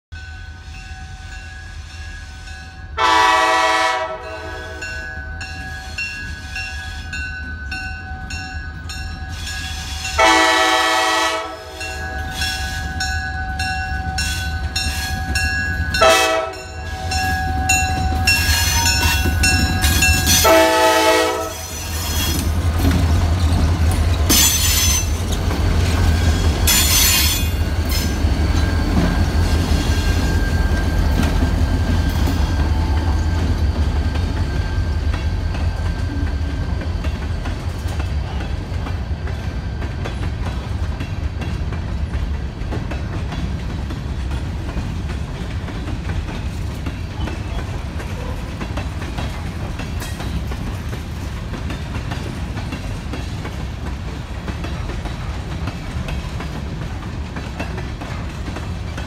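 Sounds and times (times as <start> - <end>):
locomotive air horn: 3.0 - 5.0, 10.2 - 11.8, 16.0 - 17.2, 20.4 - 21.8
train wheels screeching on rail: 8.3 - 59.0.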